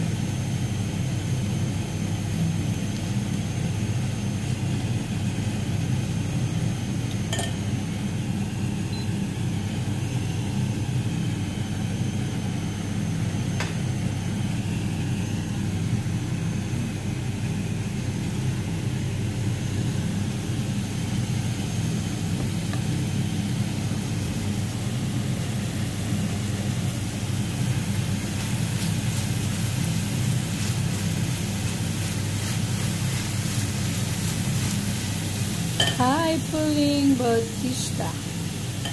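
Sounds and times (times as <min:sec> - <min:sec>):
meat sizzling in a pan: 0:23.1 - 0:38.9.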